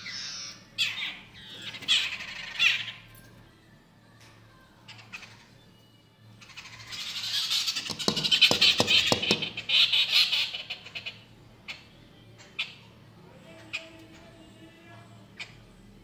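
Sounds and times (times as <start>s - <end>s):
birds chattering: 0.0s - 3.3s, 4.8s - 14.0s
taps against window glass: 7.8s - 9.6s.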